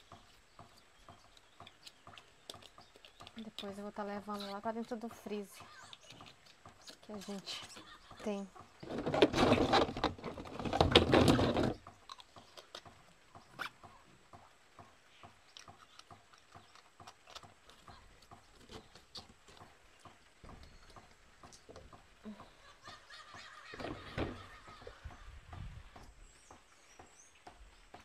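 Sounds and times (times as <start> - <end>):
plastic bottles clattering in a basin: 8.8 - 11.8.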